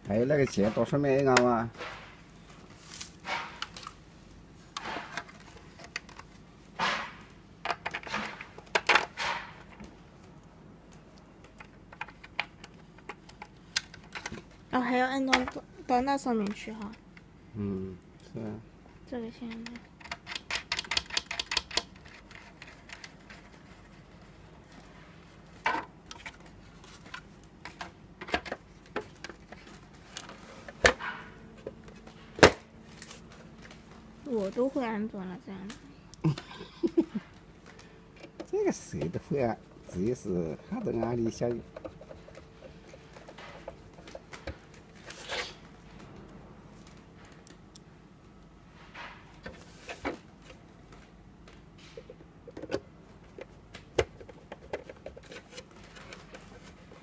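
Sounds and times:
faint steady hum: 0:00.0 - 0:57.0
plastic parts clicking: 0:19.5 - 0:23.5
plastic parts knocking: 0:40.8 - 0:44.6.

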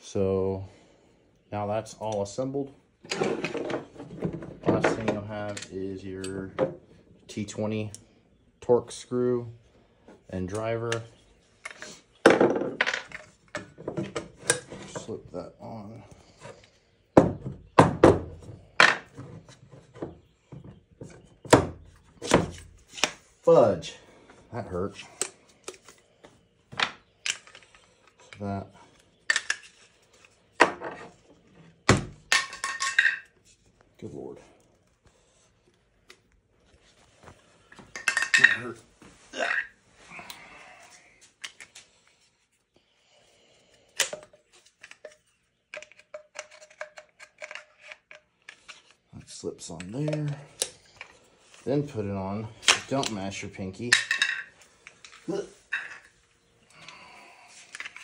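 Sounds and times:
rifle parts knocking and clacking: 0:37.7 - 0:38.8, 0:44.0 - 0:49.0.

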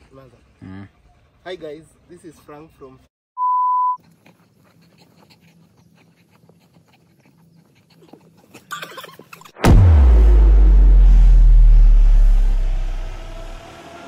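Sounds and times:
dog panting: 0:04.0 - 0:09.4
low hum: 0:09.6 - 0:13.8.

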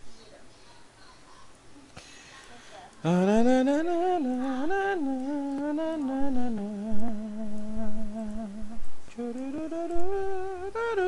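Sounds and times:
person humming a slow tune: 0:03.0 - 0:11.0.

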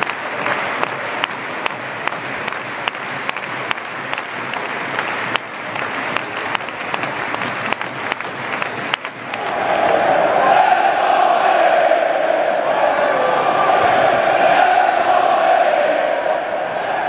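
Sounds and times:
sharp hand claps: 0:00.0 - 0:10.0
crowd noise: 0:00.0 - 0:17.0.

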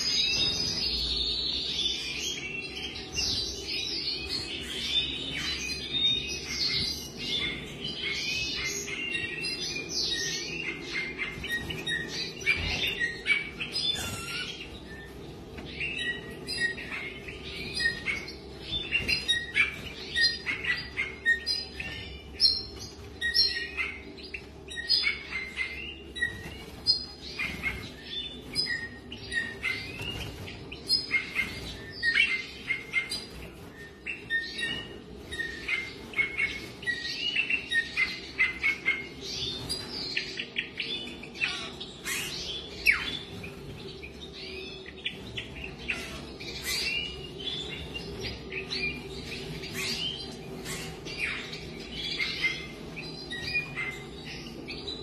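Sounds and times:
songbirds chirping and twittering: 0:00.0 - 0:55.0
steady low hum: 0:00.0 - 0:55.0.

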